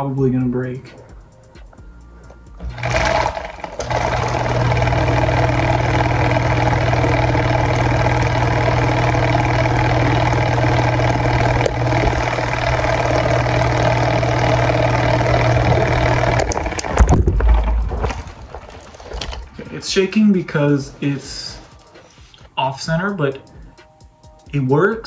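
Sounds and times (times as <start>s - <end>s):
low electrical motor hum: 1.8s - 19.7s
rush of air from fan blades: 2.7s - 16.8s.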